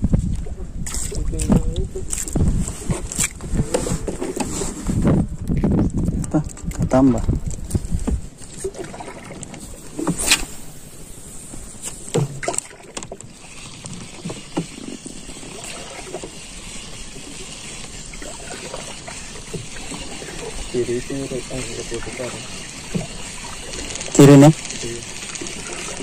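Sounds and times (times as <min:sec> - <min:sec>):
water lapping against hull: 0:00.8 - 0:26.0.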